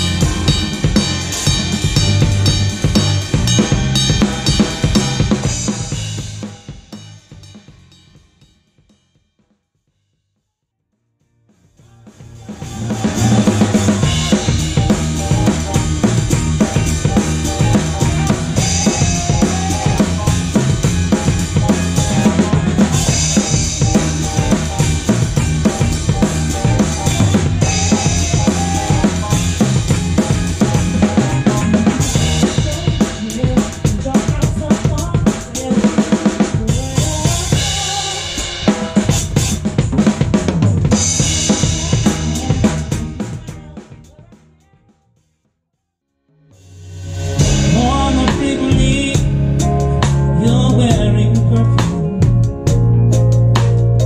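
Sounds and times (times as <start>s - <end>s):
band instruments: 0.0s - 8.9s, 11.4s - 44.7s, 46.5s - 54.0s
drum kit playing fast groove: 0.0s - 9.4s, 11.5s - 45.0s, 46.6s - 54.0s.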